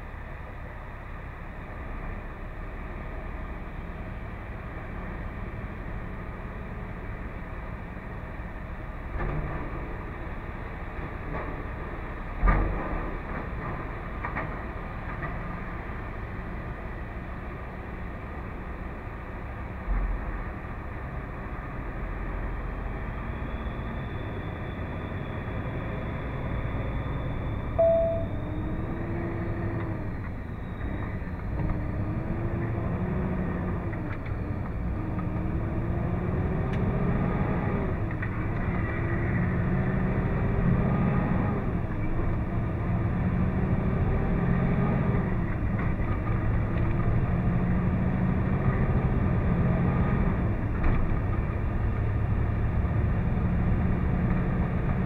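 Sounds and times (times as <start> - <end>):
truck diesel engine from cab: 0.0 - 55.0.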